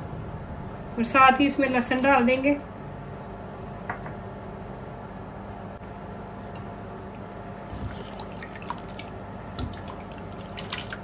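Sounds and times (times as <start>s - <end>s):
steady low hum: 0.0s - 11.0s
water bubbling in a pot: 7.7s - 11.0s.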